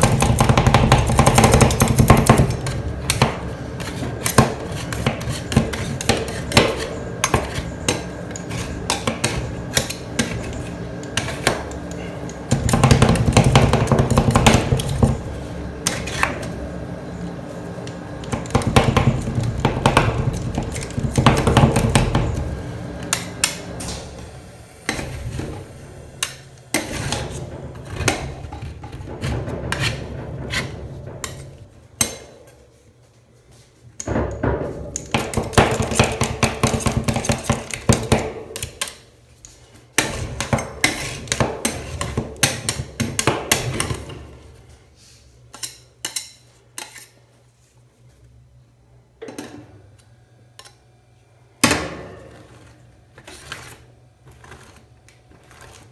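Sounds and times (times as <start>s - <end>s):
spatulas scraping a cold plate: 2.4s - 12.4s, 26.2s - 32.7s, 40.0s - 42.9s, 52.3s - 55.9s.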